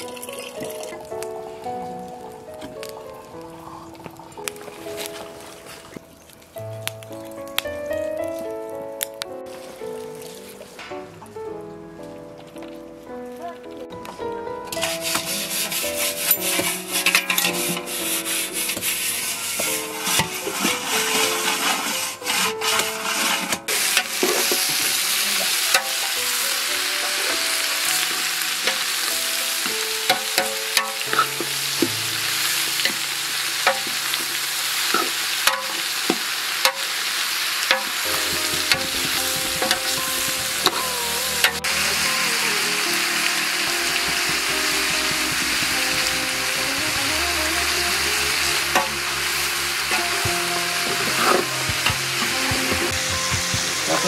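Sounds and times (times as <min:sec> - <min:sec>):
quiet background melody: 0:00.0 - 0:35.8, 0:37.7 - 0:54.0
metal ladle scraping a pot: 0:14.8 - 0:24.9, 0:37.7 - 0:41.9, 0:42.8 - 0:54.0
meat sizzling in a pot: 0:14.8 - 0:54.0.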